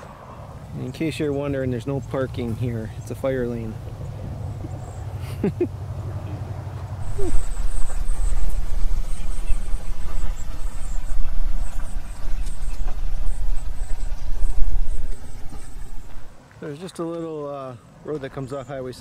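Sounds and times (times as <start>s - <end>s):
outboard motor rumbling: 6.0s - 16.4s.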